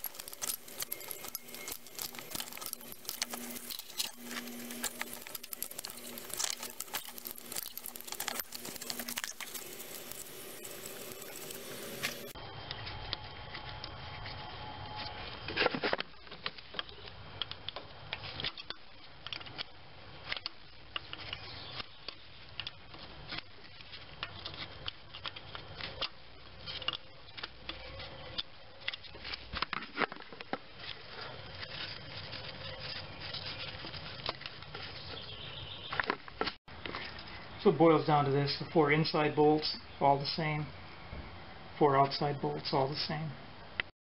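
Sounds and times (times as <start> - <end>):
hand tools clicking and scraping: 0.0 - 13.9.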